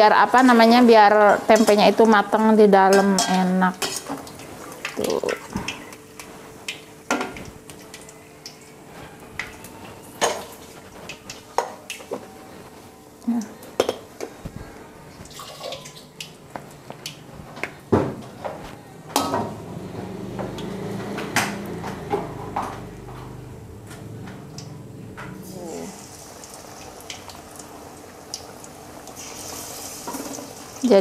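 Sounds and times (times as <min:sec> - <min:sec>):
metal utensils clattering on wok: 0:01.5 - 0:02.0, 0:02.9 - 0:04.2.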